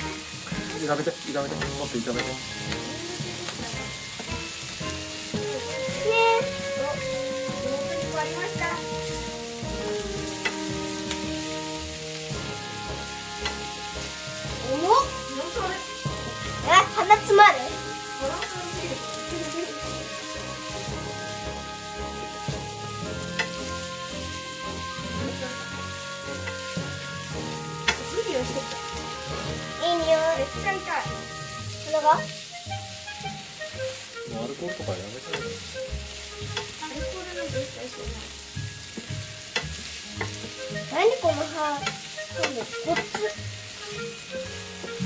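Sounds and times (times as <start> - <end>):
onions sizzling in a frying pan: 0.0 - 45.0
utensil knocking on pan: 0.4 - 6.0, 22.4 - 25.2, 26.2 - 28.7, 36.4 - 37.8, 38.6 - 40.6, 41.8 - 43.3.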